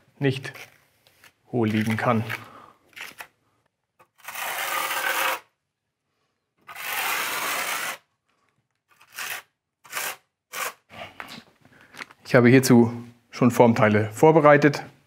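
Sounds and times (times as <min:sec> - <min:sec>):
trowel scraping wet mortar: 0:04.0 - 0:05.5, 0:06.6 - 0:08.0, 0:08.9 - 0:10.9.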